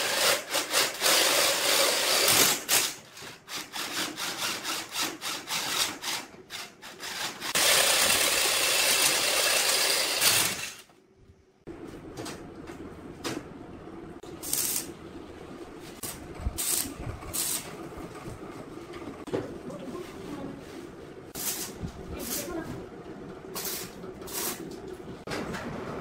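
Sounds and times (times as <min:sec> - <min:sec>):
drill boring through steel: 0:07.0 - 0:10.8.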